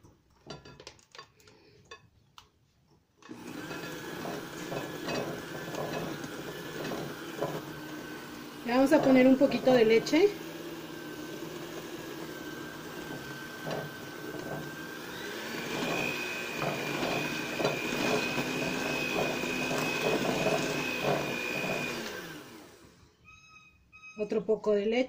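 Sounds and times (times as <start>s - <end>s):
electric hand mixer whining: 3.2s - 23.2s.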